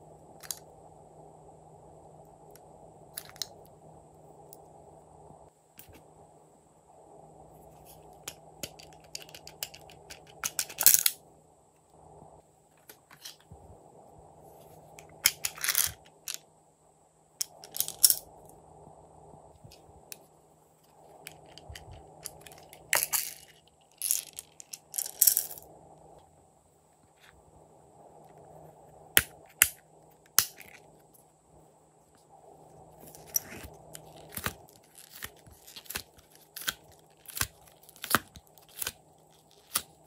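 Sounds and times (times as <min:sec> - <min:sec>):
plastic beads rattling and pouring: 0:21.3 - 0:25.6.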